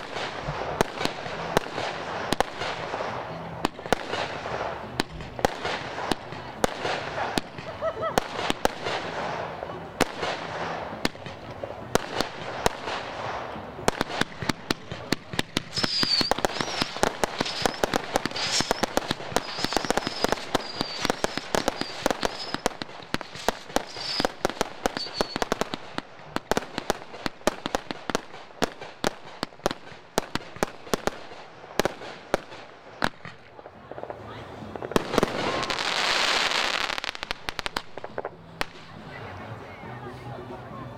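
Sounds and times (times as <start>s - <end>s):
fireworks bangs and pops: 0.0s - 39.6s
high wavering whistle: 15.7s - 22.6s.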